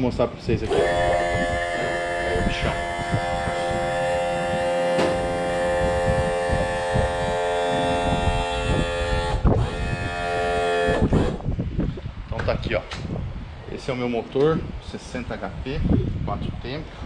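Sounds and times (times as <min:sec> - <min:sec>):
electric motor humming: 0:00.6 - 0:11.5.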